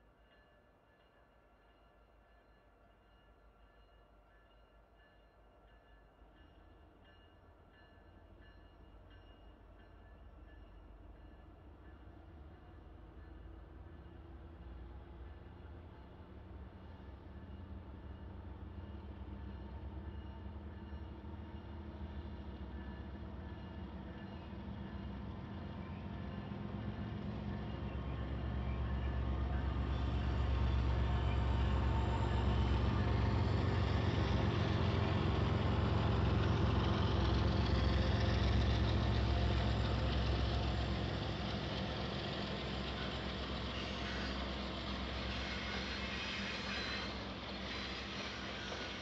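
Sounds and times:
diesel locomotive engine rumble: 0:09.8 - 0:49.0.

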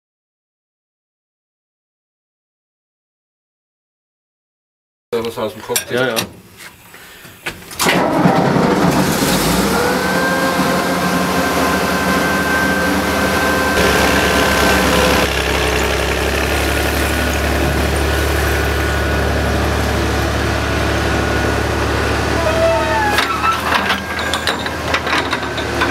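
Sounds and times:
dragline engine running: 0:07.9 - 0:25.9.

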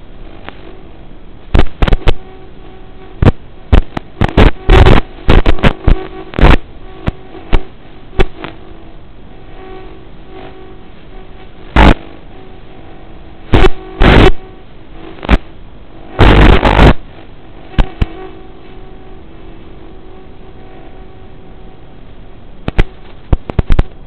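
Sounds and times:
steady hiss with faint hum: 0:00.0 - 0:24.0
sharp crackling knocks: 0:22.7 - 0:24.0.

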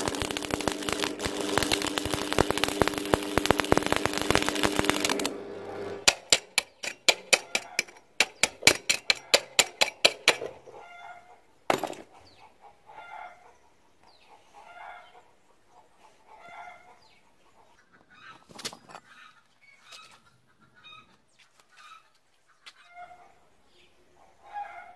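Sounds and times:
chipping hammer tapping metal: 0:00.0 - 0:10.5
hen clucking: 0:10.4 - 0:11.5, 0:12.1 - 0:24.9.

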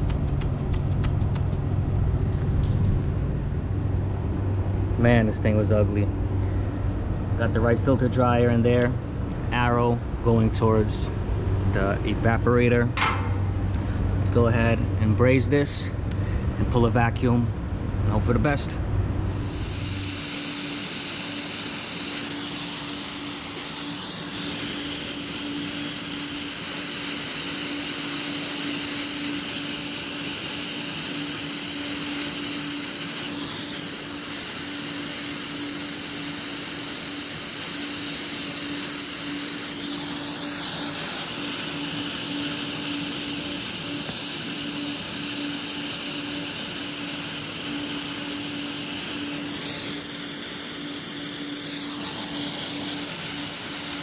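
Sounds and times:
torch flame hissing: 0:19.2 - 0:54.0.

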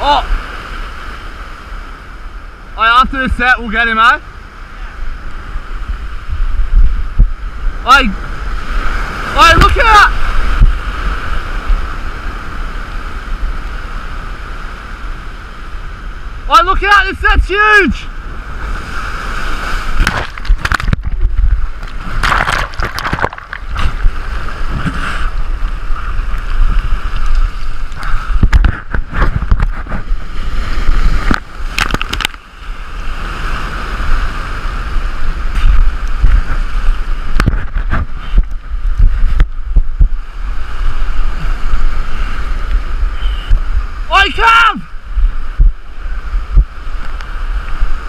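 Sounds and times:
surf breaking over rocks: 0:00.0 - 0:48.0
knocks and thumps of rocks: 0:20.0 - 0:25.0, 0:28.3 - 0:30.1, 0:31.2 - 0:32.4.

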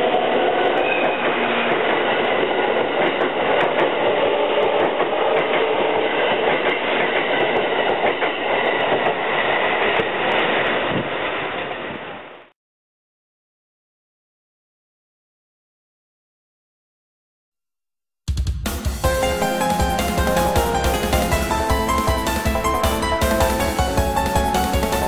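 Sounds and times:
model train running on track: 0:00.0 - 0:12.3, 0:19.0 - 0:25.0.

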